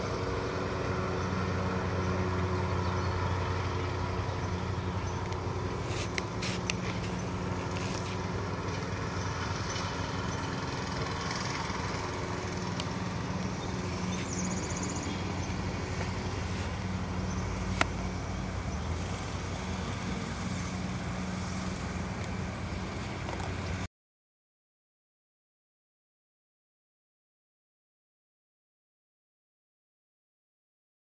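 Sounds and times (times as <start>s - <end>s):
continuous rushing noise: 0.0s - 23.9s
vehicle engine humming: 0.0s - 23.9s.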